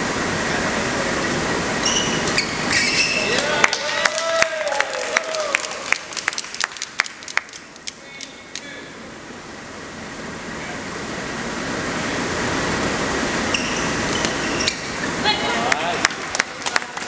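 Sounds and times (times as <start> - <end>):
handclaps: 3.4 - 8.7, 15.7 - 17.0.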